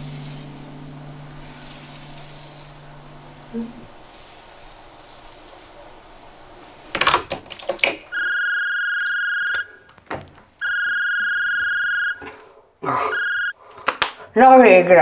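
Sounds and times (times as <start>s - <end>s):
phone ringing beeps: 8.2s - 9.8s, 10.6s - 12.2s, 13.1s - 13.5s.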